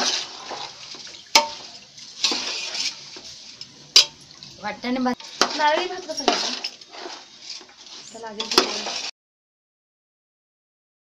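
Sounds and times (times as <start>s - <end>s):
metal spoon stirring rice in pot: 0.0s - 9.1s
spoon clinking against pot: 1.2s - 2.7s.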